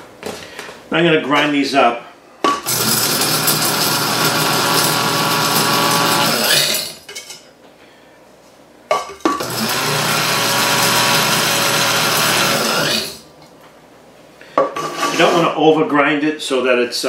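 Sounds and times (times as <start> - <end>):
spice grinder motor whirring: 2.6 - 7.0, 9.4 - 13.2.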